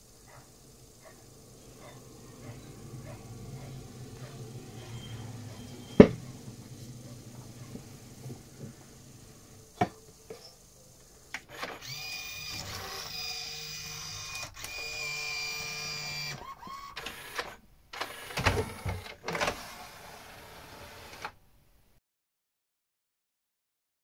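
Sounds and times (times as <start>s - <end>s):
motor whine: 0.0s - 21.3s
loud knocks: 5.9s - 6.4s.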